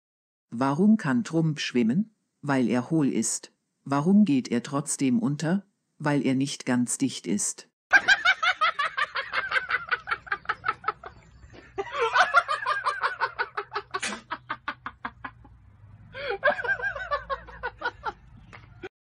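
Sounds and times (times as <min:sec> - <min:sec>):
person laughing: 0:07.9 - 0:15.6, 0:16.2 - 0:18.2.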